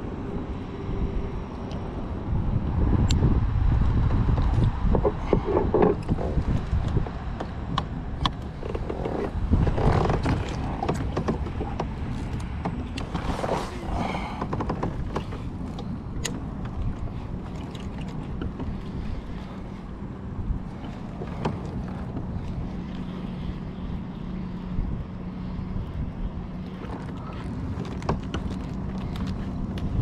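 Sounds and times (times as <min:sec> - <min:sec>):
wind buffeting microphone: 0:00.0 - 0:30.0
fishing gear clicks and knocks: 0:04.4 - 0:18.9.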